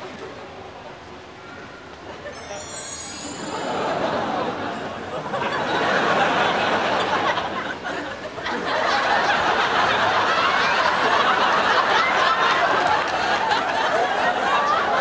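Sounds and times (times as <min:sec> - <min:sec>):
audience laughing: 0:03.3 - 0:15.0.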